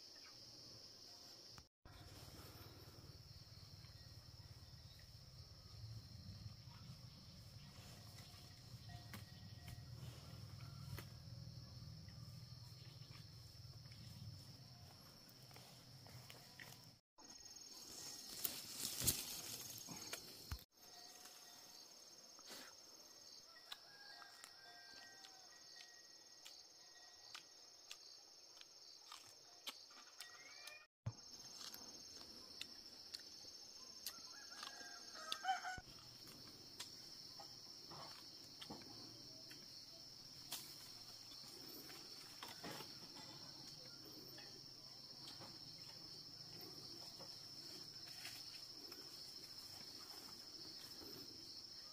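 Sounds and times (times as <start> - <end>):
insects chirring: 0.0 - 51.9
rooster crowing: 23.5 - 25.6, 34.1 - 35.9.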